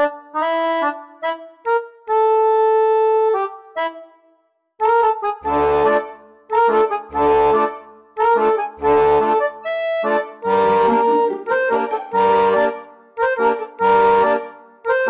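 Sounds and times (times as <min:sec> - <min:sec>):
upbeat instrumental music: 0:04.8 - 0:15.0.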